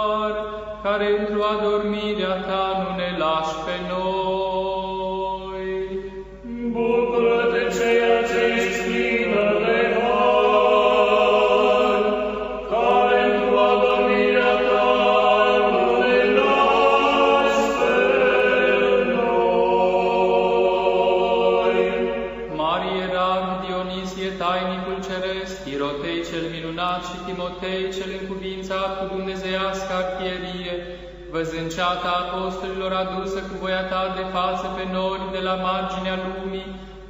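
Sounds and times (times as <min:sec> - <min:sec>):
liturgical chant: 0:00.0 - 0:37.0
low drone: 0:05.7 - 0:23.1.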